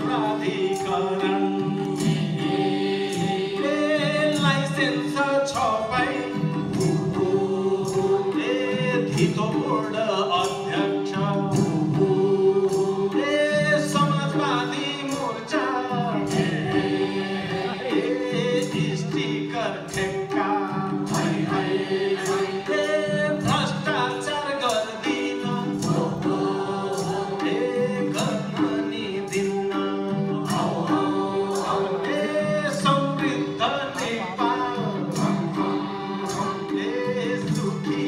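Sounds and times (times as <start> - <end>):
group singing: 0.0 - 38.0
harmonium chords: 14.4 - 38.0
steady beat: 25.1 - 38.0.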